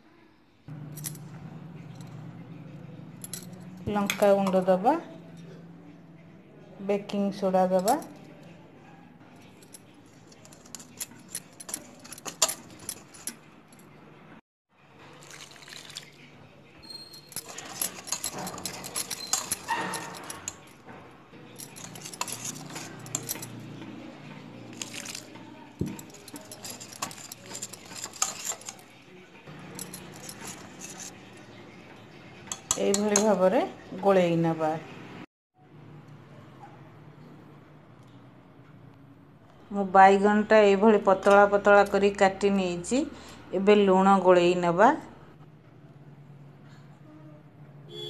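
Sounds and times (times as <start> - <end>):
water poured: 15.0 - 16.3
whisk scraping metal bowl: 26.1 - 28.8, 30.0 - 31.1.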